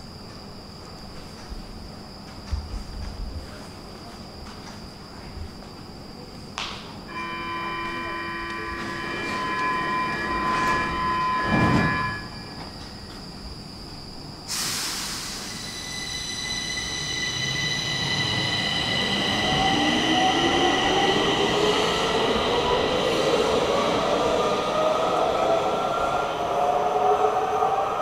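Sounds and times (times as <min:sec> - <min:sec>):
metro train motors whining: 0:01.1 - 0:28.0
train rumble: 0:07.1 - 0:14.0.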